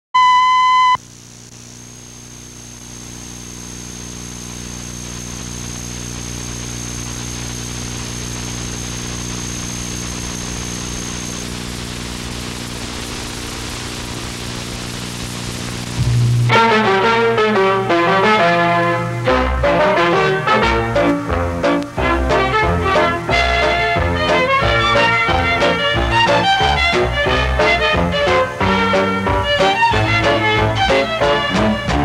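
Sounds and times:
reference tone: 0:00.2 - 0:01.0
electrical hum: 0:00.2 - 0:32.0
tape hiss: 0:00.2 - 0:32.0
thin high whine: 0:00.2 - 0:32.0.

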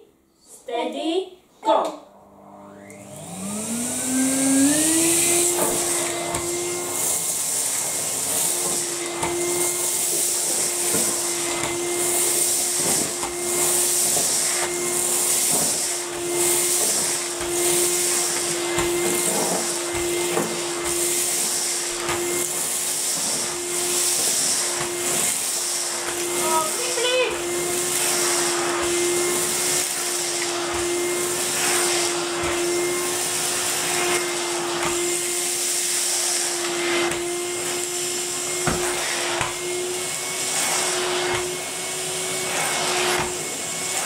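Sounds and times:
vacuum cleaner motor whine: 0:02.0 - 0:44.0.

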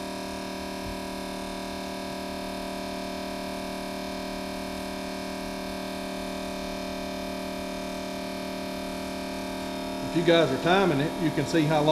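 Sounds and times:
pump humming: 0:00.0 - 0:11.9.

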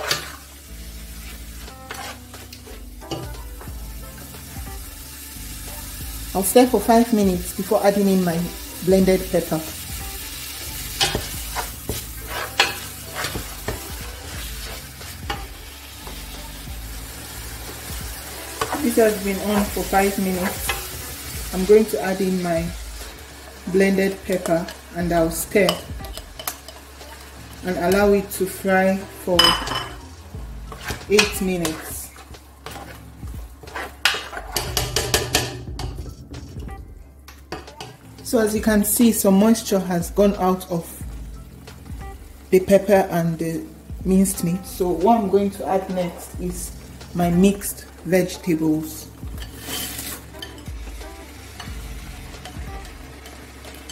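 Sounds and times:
spatula scraping and tapping pot: 0:00.0 - 0:00.4, 0:01.6 - 0:03.7, 0:11.0 - 0:15.5, 0:25.6 - 0:27.2, 0:30.7 - 0:36.6, 0:49.4 - 0:50.7, 0:52.4 - 0:53.9
meat and onions sizzling in oil: 0:00.0 - 0:36.0, 0:37.3 - 0:53.9.

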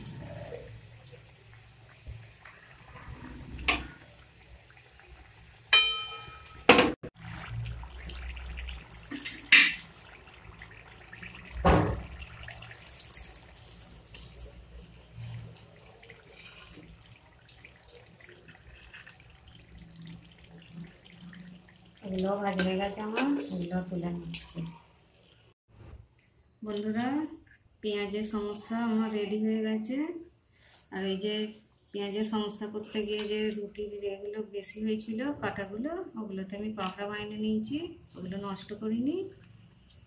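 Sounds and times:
metal spoon clinking on pan: 0:05.8 - 0:06.7.

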